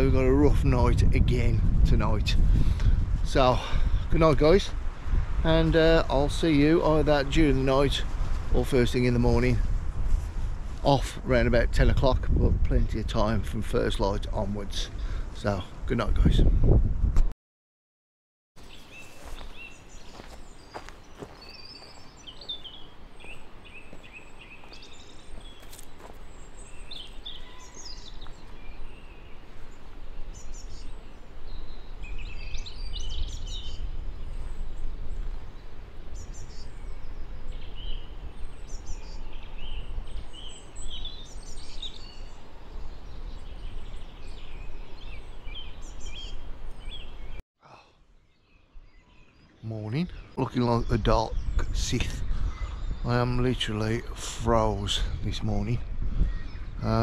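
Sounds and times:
songbirds singing and chirping: 0.0s - 9.6s, 18.6s - 57.0s
wind rumble on microphone: 0.0s - 17.3s, 26.3s - 47.4s, 50.1s - 57.0s.

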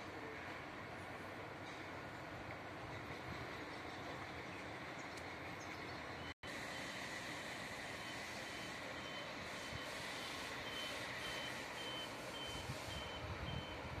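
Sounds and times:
steady background noise: 0.0s - 14.0s
reversing alarm beeping: 7.5s - 14.0s.

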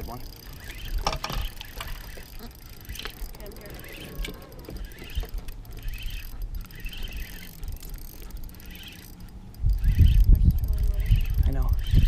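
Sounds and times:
wind on microphone: 9.4s - 12.0s.

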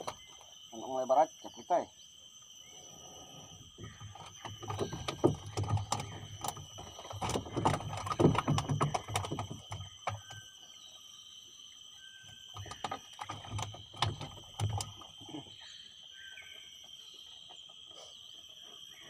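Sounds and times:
knocks and clatter on wooden planks: 0.0s - 0.6s, 3.6s - 10.6s, 12.3s - 15.3s.

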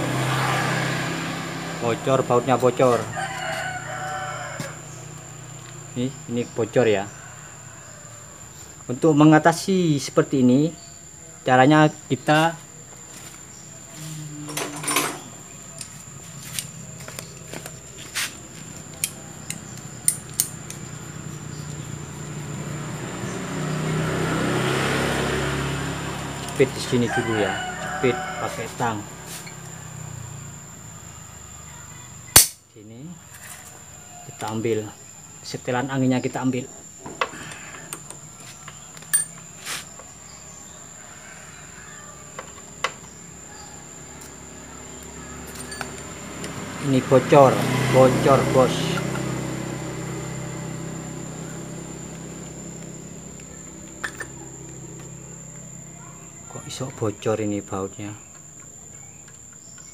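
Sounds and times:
metal hand tools clinking: 14.5s - 15.2s, 39.1s - 39.5s, 45.5s - 46.0s
metal tool clicks and taps: 18.9s - 20.8s.

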